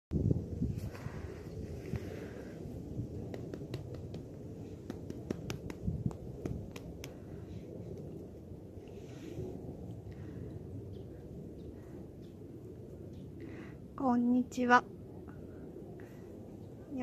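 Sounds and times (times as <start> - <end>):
wind on microphone: 0.1 - 12.1.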